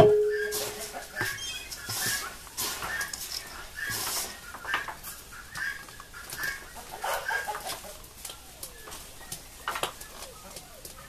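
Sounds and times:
chickens clucking: 0.0 - 11.0
hand rustling food in metal bowl: 0.1 - 5.1.

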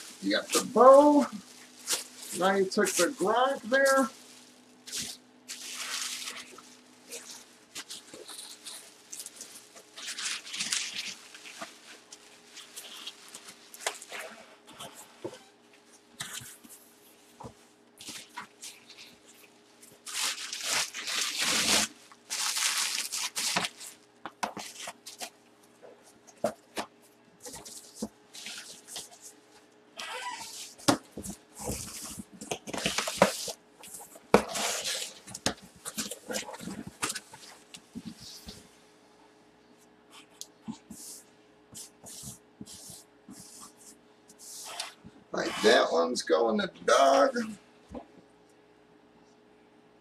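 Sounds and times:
plastic packaging rustling: 0.0 - 25.4, 26.2 - 38.6
marker pen squeaking on cardboard: 30.0 - 30.8, 44.4 - 45.9.

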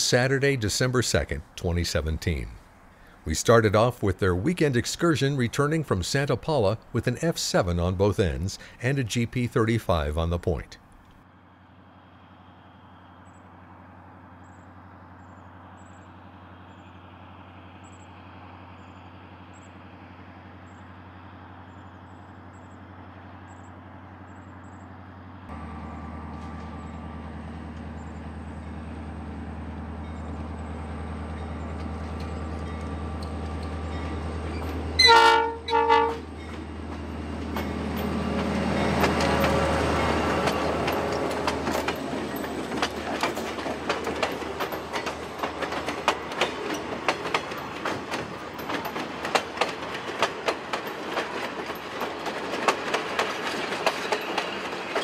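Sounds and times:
diesel locomotive engine drone: 0.0 - 55.0
train wheel noise: 12.4 - 55.0
train horn blasts: 35.0 - 36.3.

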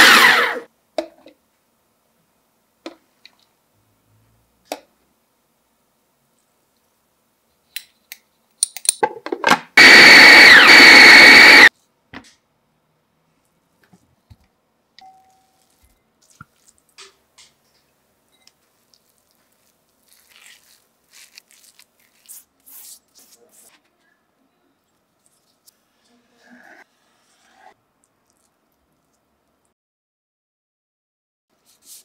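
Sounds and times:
food processor motor whining: 0.0 - 0.7, 9.8 - 11.7.

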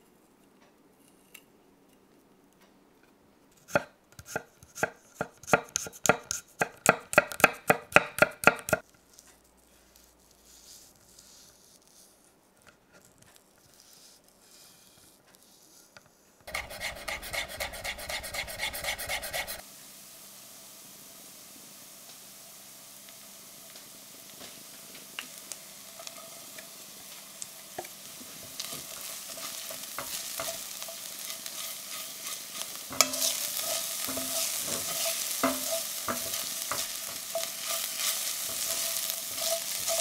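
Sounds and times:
rapid knife mincing strokes: 3.6 - 12.2, 16.4 - 19.6, 28.4 - 40.0
knife cutting on wooden board: 16.5 - 19.6.

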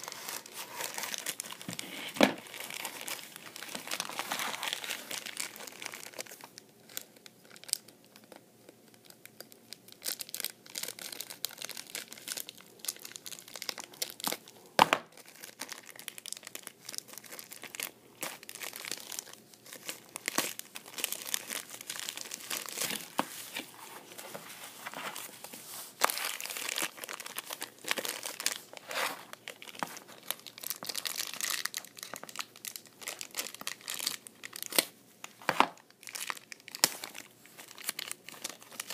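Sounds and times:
plastic bag crinkling: 0.0 - 8.4, 9.0 - 38.9.

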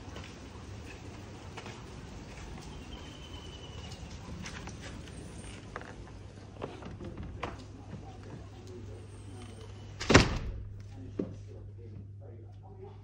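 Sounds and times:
rain falling: 0.0 - 7.8.

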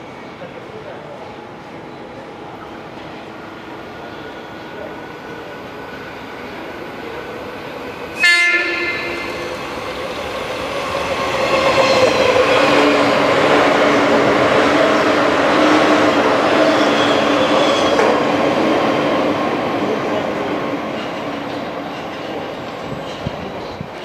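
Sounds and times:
train wheels rolling on rails: 1.4 - 24.0
train horn blast: 8.1 - 9.6.

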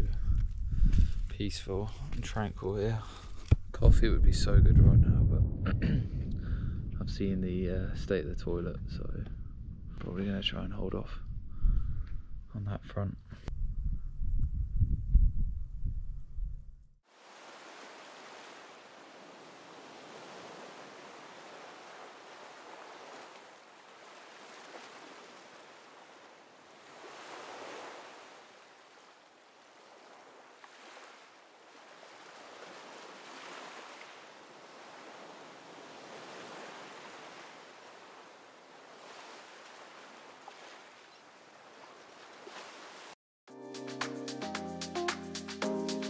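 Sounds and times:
gentle sea waves washing in: 17.0 - 43.2.

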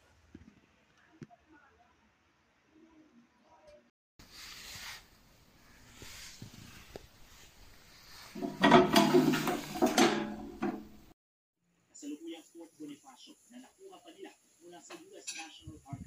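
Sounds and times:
metal box clattering and scraping: 8.3 - 11.0.

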